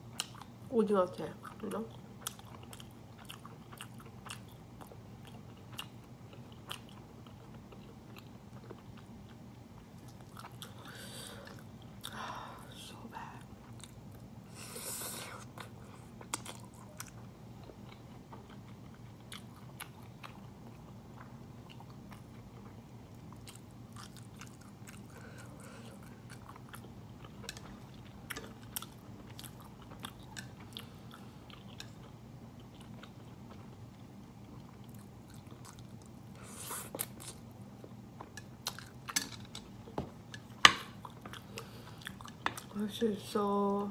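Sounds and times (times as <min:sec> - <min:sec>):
steady low hum: 0:00.0 - 0:43.9
wet chewing clicks and smacks: 0:16.2 - 0:25.2.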